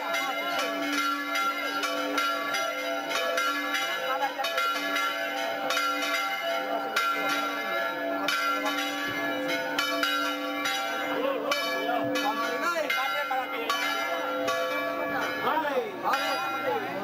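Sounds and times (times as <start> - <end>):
church bells pealing: 0.0 - 17.0.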